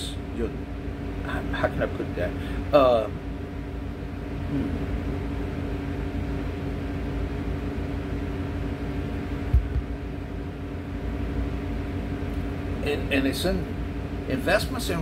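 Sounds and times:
low machinery hum: 0:00.0 - 0:15.0
soft thump: 0:09.5 - 0:09.9.

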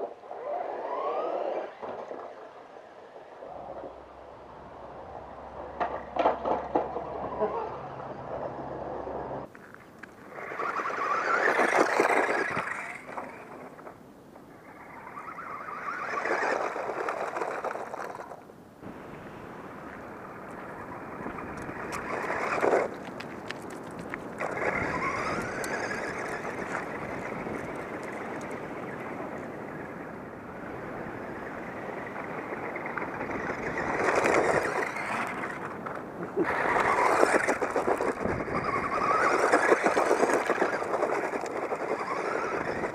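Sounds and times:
toy car electric motor whine: 0:00.3 - 0:02.0, 0:10.3 - 0:13.8, 0:14.6 - 0:18.4, 0:20.5 - 0:30.0, 0:31.2 - 0:42.9
tyres crunching over gravel: 0:09.4 - 0:14.0, 0:15.2 - 0:30.0, 0:30.6 - 0:42.9.

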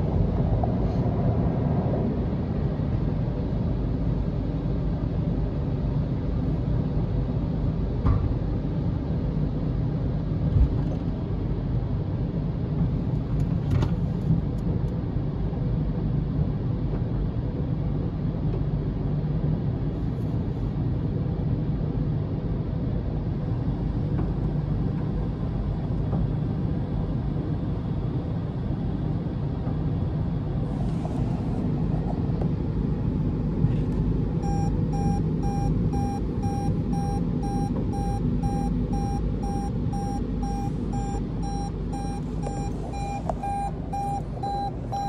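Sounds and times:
car wash brushes and water rumbling: 0:29.8 - 0:34.6
electronic beeps: 0:34.4 - 0:45.0.

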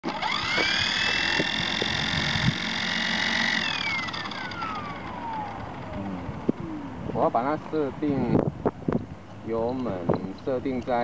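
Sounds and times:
electric motor whining: 0:00.0 - 0:07.5.

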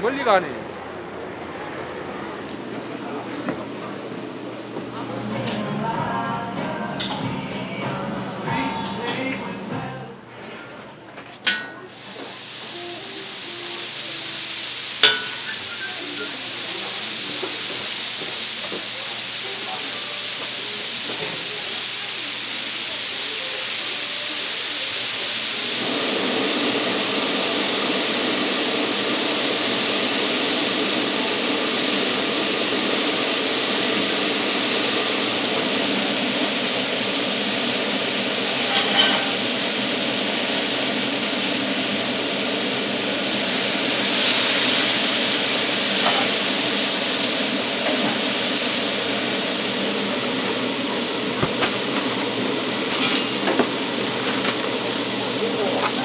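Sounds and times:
steak sizzling: 0:11.4 - 0:56.0.

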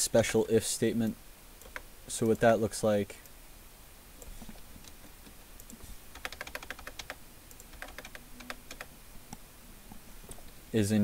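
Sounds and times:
typing on keyboard: 0:06.1 - 0:08.9.

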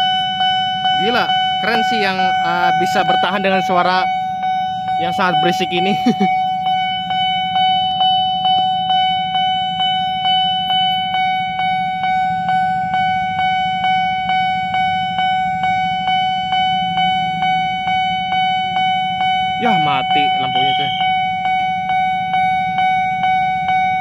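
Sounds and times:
level crossing alarm pulsing tone: 0:00.0 - 0:24.0.

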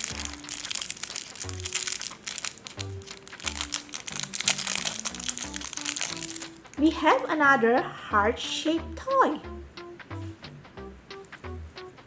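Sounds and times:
plastic wrapper crinkling: 0:00.0 - 0:06.8
background music: 0:00.0 - 0:12.0.

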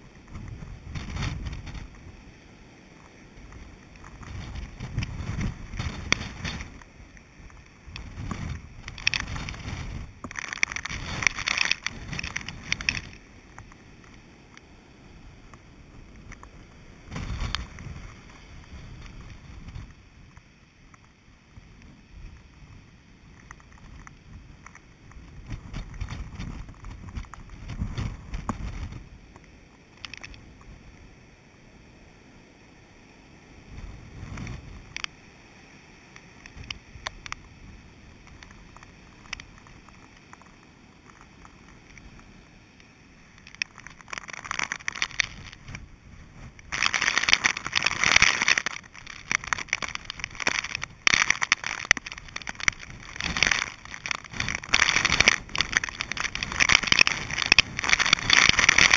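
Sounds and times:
rain crackling against case: 0:00.0 - 0:31.0, 0:33.6 - 0:35.3, 0:36.1 - 0:58.9
wind and rain on camera housing: 0:00.0 - 0:58.9.

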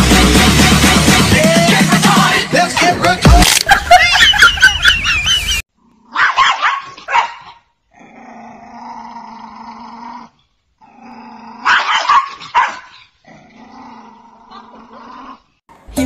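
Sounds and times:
dog barking: 0:06.1 - 0:07.7, 0:11.6 - 0:13.1
small dog growling: 0:07.9 - 0:11.8, 0:13.2 - 0:15.6.

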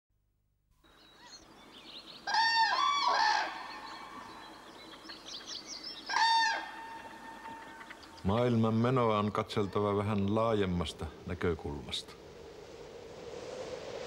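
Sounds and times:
bird calls: 0:00.9 - 0:10.0.

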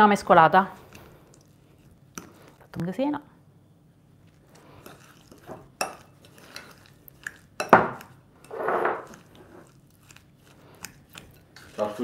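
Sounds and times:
metal spoon scraping glass bowl: 0:07.6 - 0:09.7.

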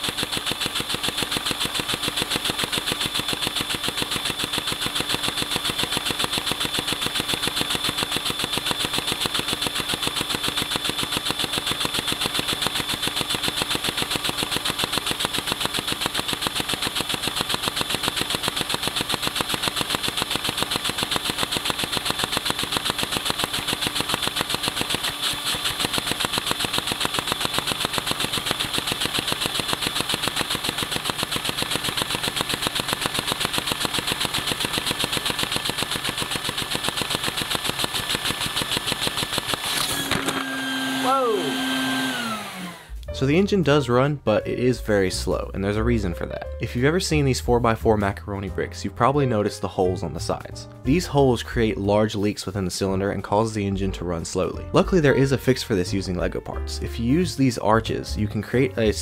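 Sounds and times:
plastic mechanism clicking: 0:00.0 - 0:40.5
vacuum cleaner whine: 0:36.8 - 0:43.0.

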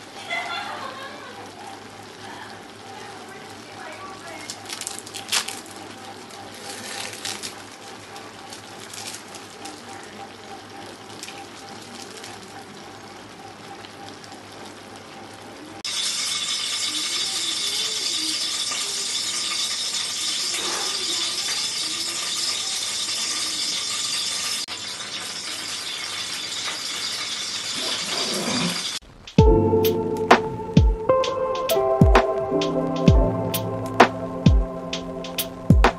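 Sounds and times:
hot oil sizzling and spattering: 0:01.5 - 0:29.4.

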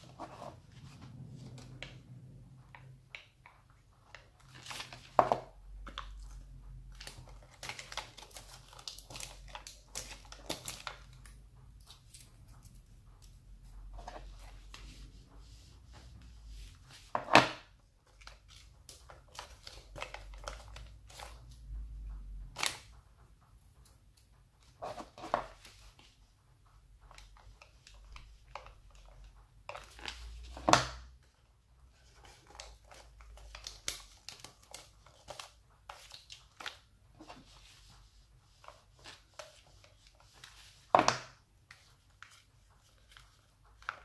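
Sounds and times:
wrapping paper crinkling: 0:05.9 - 0:12.4, 0:32.0 - 0:37.9.

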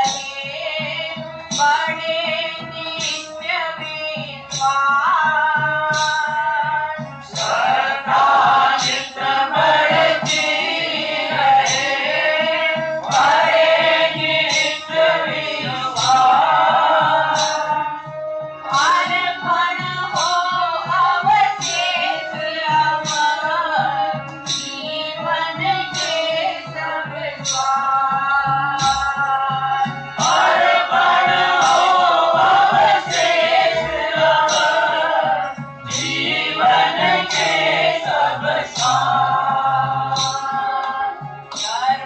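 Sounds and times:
low rhythmic beat: 0:00.0 - 0:42.0.

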